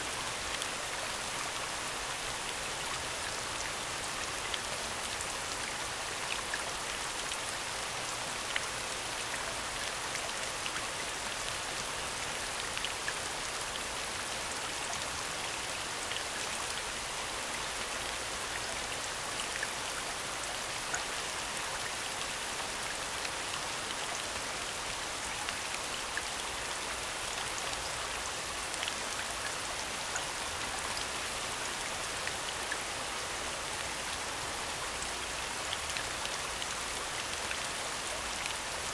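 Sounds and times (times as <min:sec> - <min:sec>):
steady rain hiss: 0:00.0 - 0:38.9.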